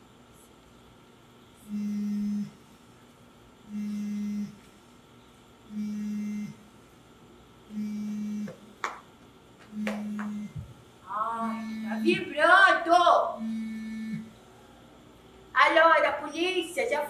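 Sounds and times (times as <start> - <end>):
phone vibrating: 1.6 - 2.8, 3.6 - 4.8, 5.7 - 6.8, 7.7 - 8.8, 9.6 - 14.4.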